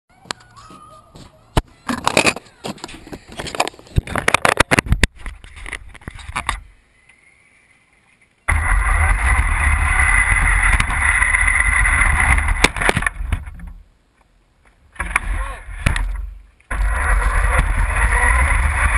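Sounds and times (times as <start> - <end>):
rc car motor whining: 8.5 - 12.6, 16.7 - 18.9.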